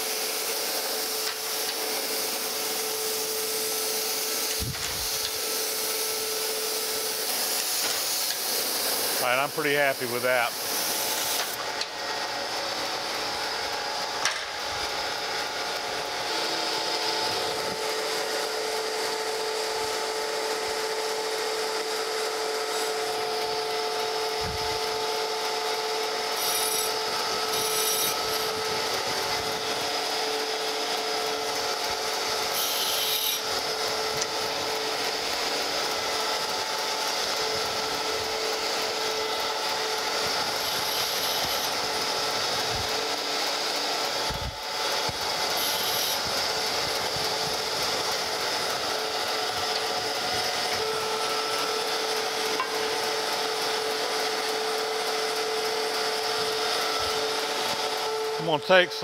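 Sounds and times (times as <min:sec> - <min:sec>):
grinder wheel whining: 0:00.0 - 0:59.0.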